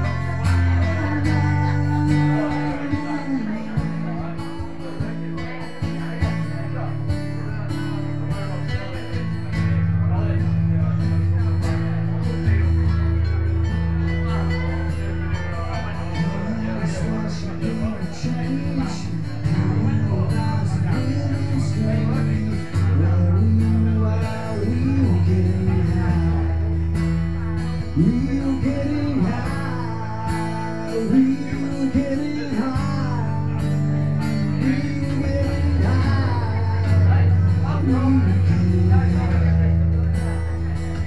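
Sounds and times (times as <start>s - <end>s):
person singing: 0.0s - 4.6s, 27.7s - 40.0s
bar crowd chatter: 0.0s - 41.0s.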